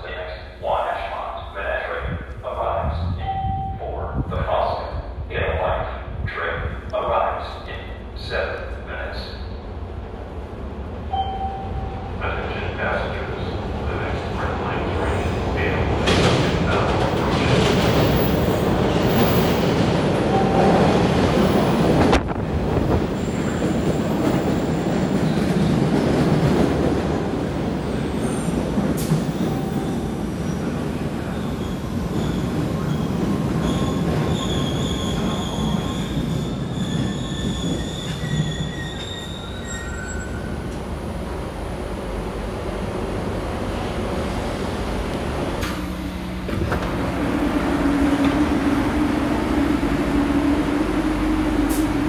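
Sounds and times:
subway train rumbling on rails: 0.0s - 52.0s
high-pitched wheel squeal: 33.6s - 40.6s.

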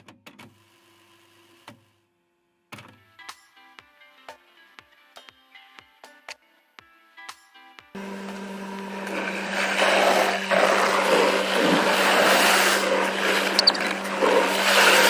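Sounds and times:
machine hum: 8.0s - 15.0s
water spraying on car: 8.0s - 15.0s
cloth strips scrubbing windshield: 8.8s - 15.0s.

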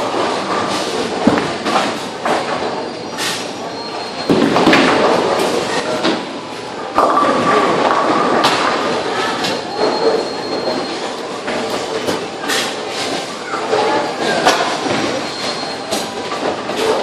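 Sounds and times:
bowling balls rumbling: 0.0s - 2.9s, 4.2s - 12.9s
bowling pins crashing: 1.1s - 2.5s, 4.3s - 5.6s.

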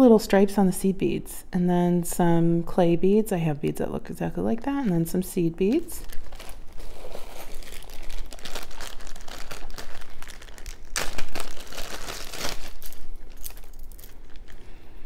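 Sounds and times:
plastic bag crinkling: 5.6s - 14.8s.

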